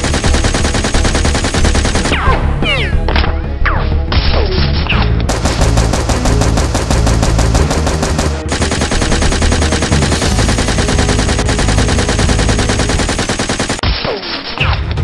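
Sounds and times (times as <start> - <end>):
rapid automatic gunfire: 0.0 - 2.3, 5.3 - 14.6.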